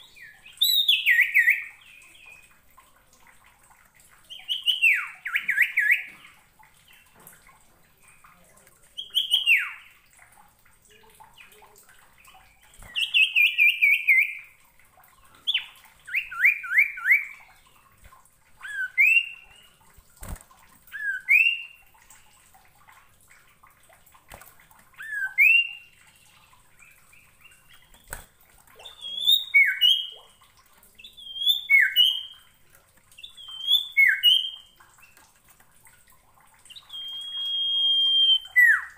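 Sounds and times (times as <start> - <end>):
bird whistled song: 0.0 - 2.5, 4.3 - 6.2, 9.0 - 9.9, 12.8 - 14.5, 15.4 - 17.4, 18.6 - 19.8, 20.9 - 21.8, 25.0 - 25.9, 28.8 - 30.2, 31.0 - 32.4, 33.2 - 34.8, 36.7 - 38.9.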